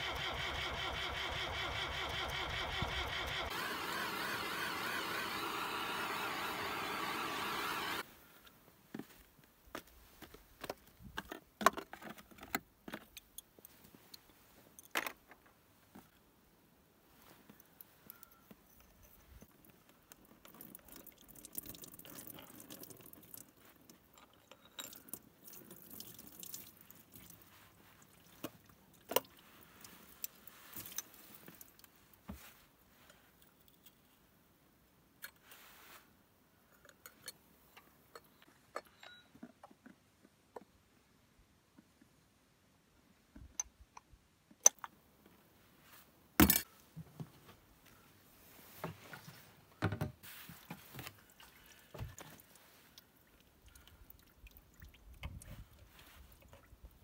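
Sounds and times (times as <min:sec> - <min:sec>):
metal clinks and taps of tools: 0:17.5 - 0:19.6, 0:36.8 - 0:39.8.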